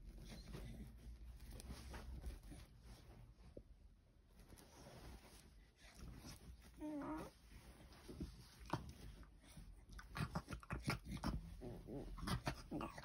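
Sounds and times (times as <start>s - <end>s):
dog whining groan: 6.8s - 7.4s.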